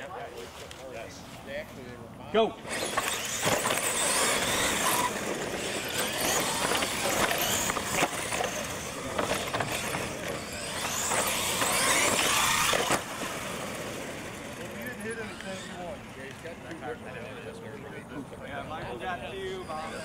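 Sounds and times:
toy truck motors whining: 0:02.6 - 0:17.4, 0:18.9 - 0:20.0
tyres on concrete: 0:02.7 - 0:16.8.

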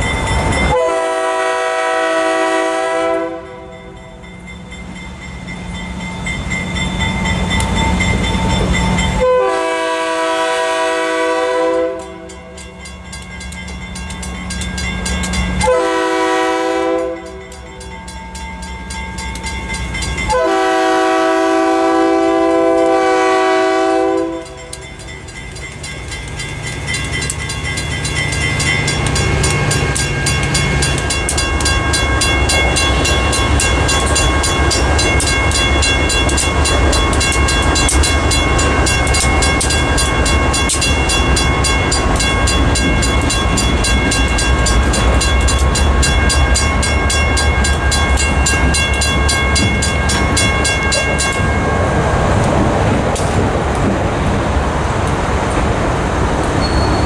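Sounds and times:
crossing bell ringing: 0:00.0 - 0:53.0, 0:56.6 - 0:57.0
locomotive horn: 0:00.7 - 0:03.8, 0:09.2 - 0:12.3, 0:15.6 - 0:17.4, 0:20.3 - 0:24.6.

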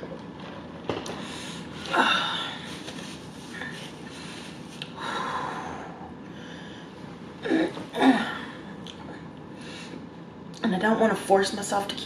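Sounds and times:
woman breathing out: 0:01.1 - 0:02.9, 0:03.5 - 0:08.7.

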